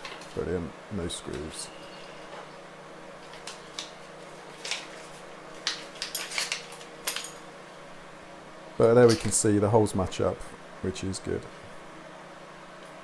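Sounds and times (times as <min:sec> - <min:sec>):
plastic bags crinkling: 0:03.2 - 0:07.4
small metal parts clinking: 0:06.0 - 0:07.4.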